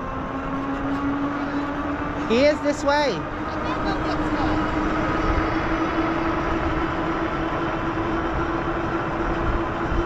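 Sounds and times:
electric bike motor whine: 0.0 - 10.0
wind buffeting microphone: 0.0 - 10.0.

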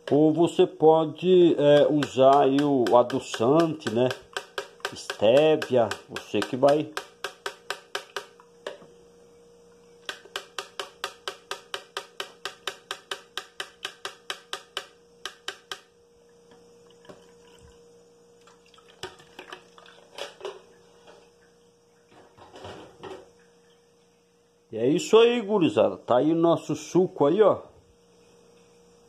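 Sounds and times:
faint steady hum: 0.0 - 29.0
knocks and clinks of kitchenware: 2.0 - 8.8, 10.1 - 15.9.

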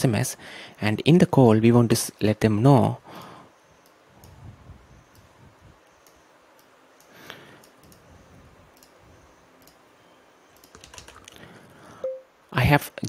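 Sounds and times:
faint computer mouse clicks: 5.9 - 8.1, 9.6 - 9.8, 10.5 - 11.4.

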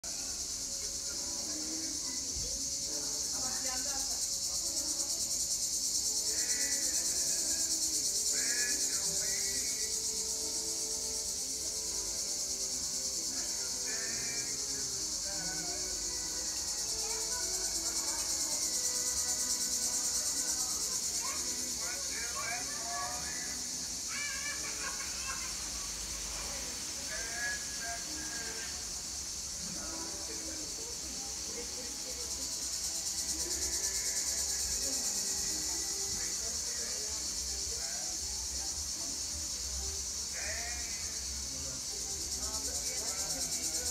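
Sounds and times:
insects shrilling: 0.0 - 43.9.

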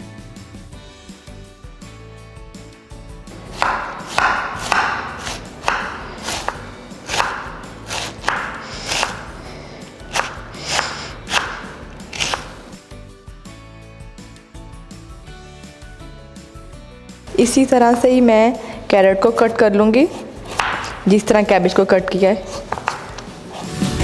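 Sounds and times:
background music: 0.0 - 24.0
knife crunching through cabbage: 3.5 - 12.8
knife knocking on cutting board: 3.6 - 9.2, 20.5 - 21.0, 22.7 - 23.2.

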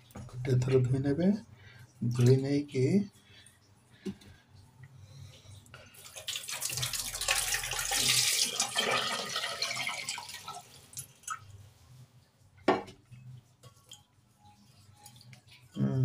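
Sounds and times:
water pouring into sink: 6.0 - 11.4.

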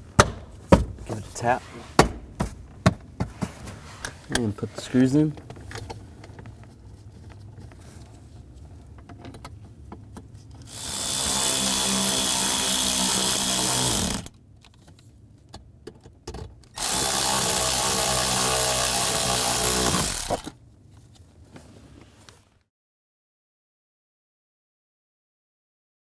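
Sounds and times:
cordless drill driving screws: 10.7 - 14.3, 16.8 - 20.5.

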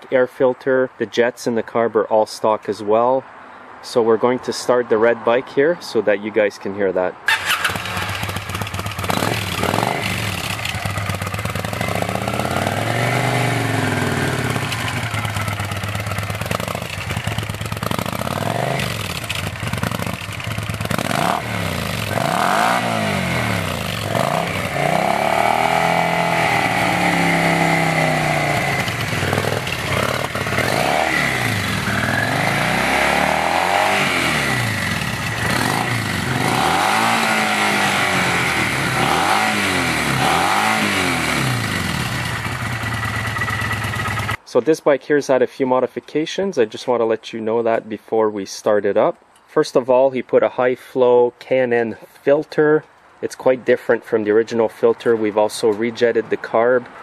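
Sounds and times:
motorcycle engine revving: 7.3 - 44.4.

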